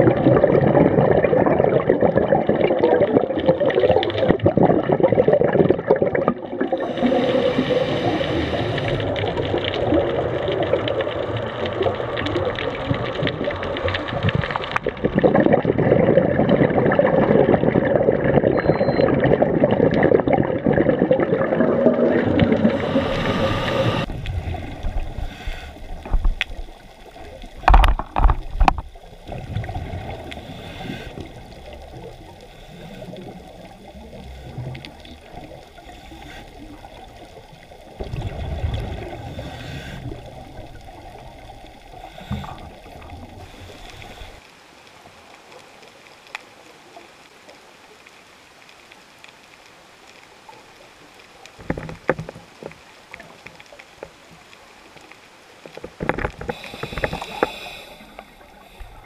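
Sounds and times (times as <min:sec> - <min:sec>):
underwater gurgling bubbles: 0:00.0 - 0:48.1, 0:50.1 - 0:59.0
underwater water rush: 0:00.0 - 0:59.0
loud bubble bursts: 0:14.8 - 0:24.7.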